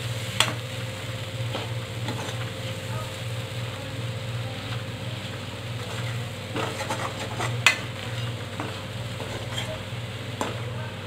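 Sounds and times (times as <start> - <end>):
food sizzling: 0.0 - 11.0
spoon stirring and scraping: 5.8 - 9.8.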